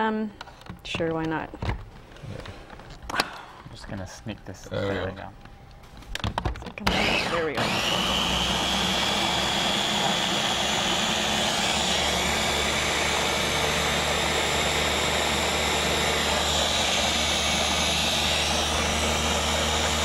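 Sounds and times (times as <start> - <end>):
blender motor whine: 6.8 - 20.0.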